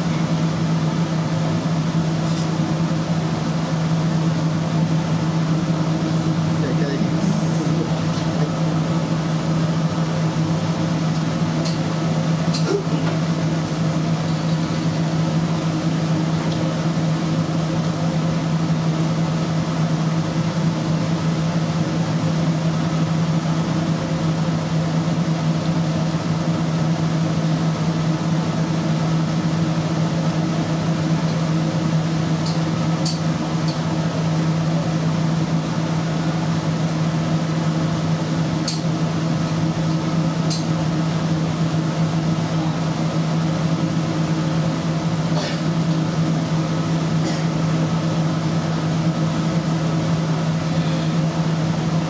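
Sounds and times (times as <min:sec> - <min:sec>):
kitchen ventilation hum: 0:00.0 - 0:52.0.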